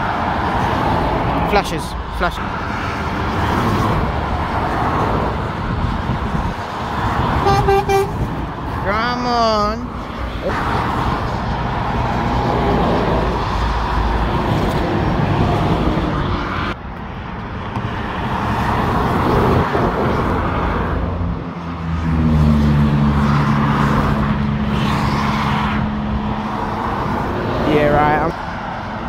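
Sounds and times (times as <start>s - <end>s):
heavy vehicle engine drone: 0.0s - 18.4s
motorway traffic roar: 0.0s - 29.0s.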